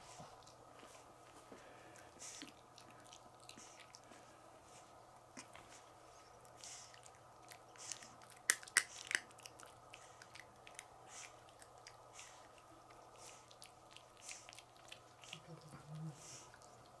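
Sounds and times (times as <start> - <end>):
puppy chewing on toy: 0.0 - 17.0.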